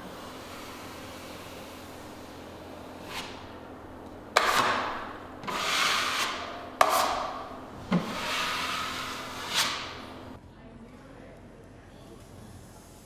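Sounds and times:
drywall knife scraping compound: 0.0s - 3.6s, 4.3s - 10.4s.

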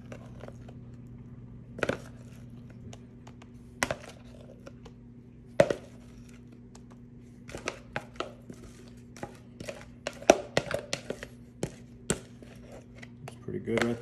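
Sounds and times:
spatula scraping mixing bowl: 0.0s - 0.8s, 7.3s - 14.0s.

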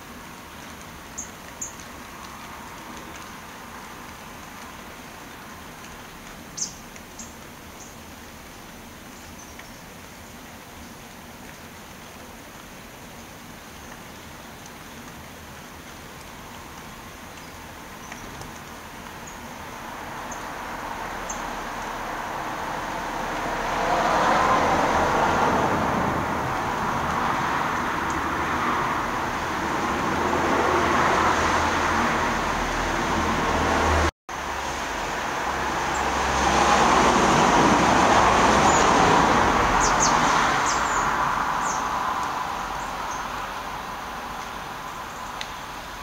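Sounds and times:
low traffic rumble: 0.0s - 46.0s
cars passing: 18.9s - 46.0s.

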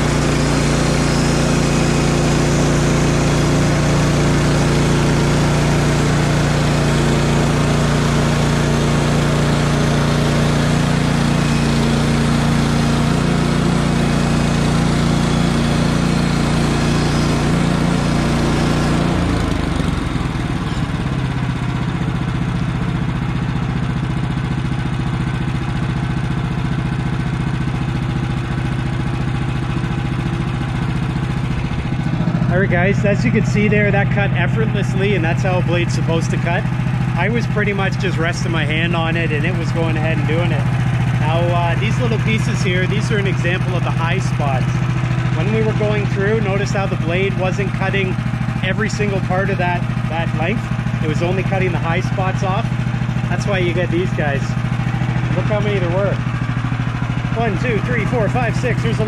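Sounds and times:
bandsaw blade cutting wood: 0.0s - 21.4s
petrol engine running under load: 0.0s - 59.0s.

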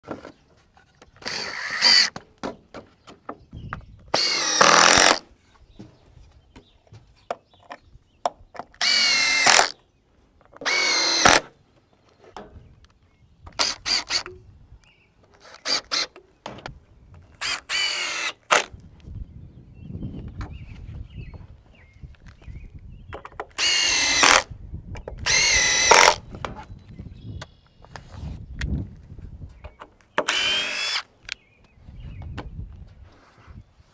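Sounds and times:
cordless drill driving screws: 1.2s - 2.1s, 4.1s - 5.2s, 8.8s - 9.7s, 10.6s - 11.5s, 13.5s - 14.3s, 15.4s - 16.2s, 17.4s - 18.7s, 23.6s - 24.5s, 25.2s - 26.2s, 30.2s - 31.1s
drill trigger blips: 4.1s - 5.2s, 8.8s - 9.7s, 10.6s - 11.5s, 23.6s - 24.5s, 25.2s - 26.2s, 30.2s - 31.0s.

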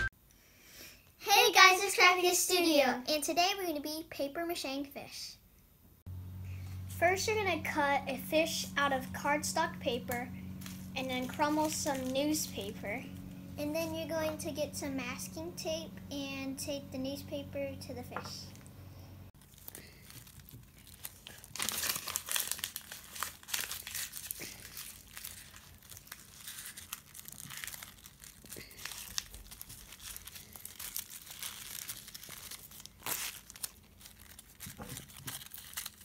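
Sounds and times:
newspaper crinkling: 10.0s - 13.2s, 19.4s - 36.0s
masking tape tearing: 10.1s - 12.7s, 19.4s - 36.0s.

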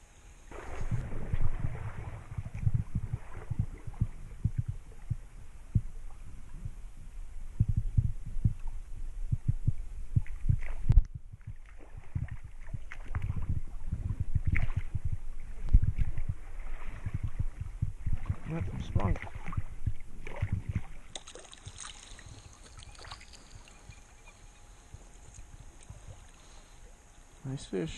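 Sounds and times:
wading through shallow water: 0.5s - 27.8s.

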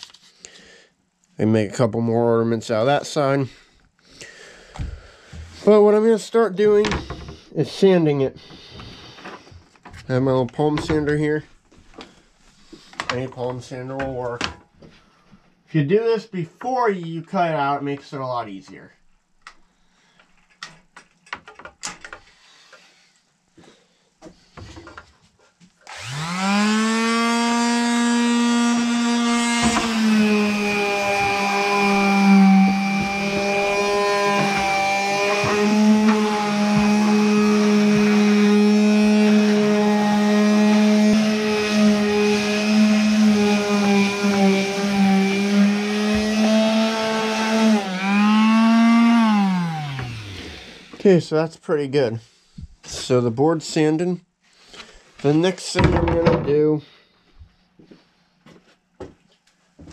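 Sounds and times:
electric sander motor whine: 25.9s - 51.0s.

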